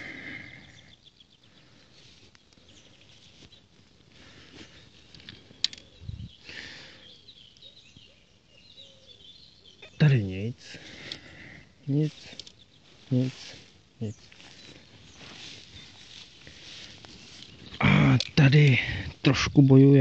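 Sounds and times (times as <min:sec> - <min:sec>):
faint birds chirping: 0:00.0 - 0:20.0
footsteps through grass: 0:01.6 - 0:06.9, 0:10.8 - 0:20.0.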